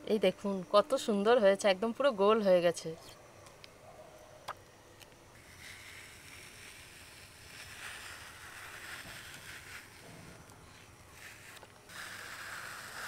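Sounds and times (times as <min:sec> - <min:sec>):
ice cream scoop scraping: 0:05.4 - 0:13.0.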